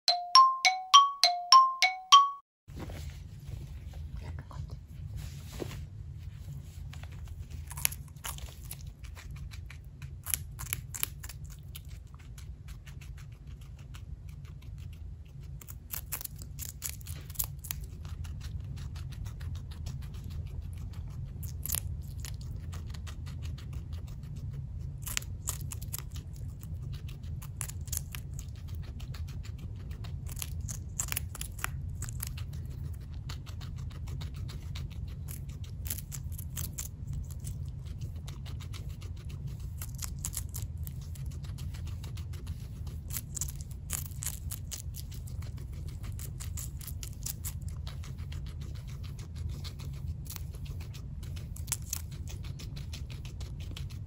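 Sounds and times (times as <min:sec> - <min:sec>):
steady low hum: 0:02.7 - 0:54.0
guinea pig crunching pepper: 0:06.2 - 0:54.0.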